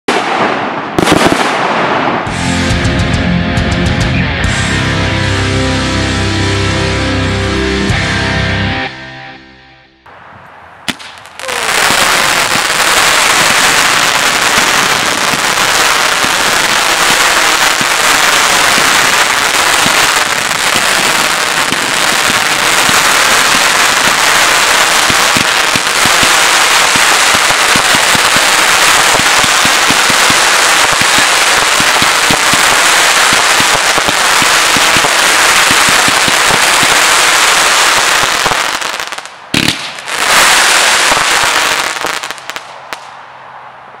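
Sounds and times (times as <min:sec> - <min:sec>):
firework crackling: 0:00.1 - 0:02.4, 0:10.9 - 0:43.1.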